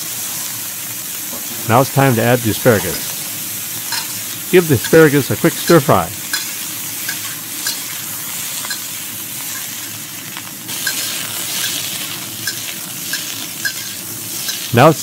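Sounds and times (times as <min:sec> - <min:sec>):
vegetables sizzling in hot oil: 0:00.0 - 0:15.0
metal spatula clinking on wok: 0:03.9 - 0:04.2, 0:06.2 - 0:08.0, 0:08.6 - 0:09.9, 0:10.7 - 0:14.7.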